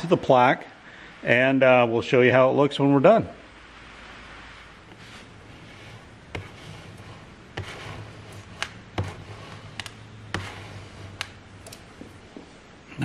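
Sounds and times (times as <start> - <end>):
low steady hum: 0.0 - 13.0
squeegee scraping: 4.3 - 12.6.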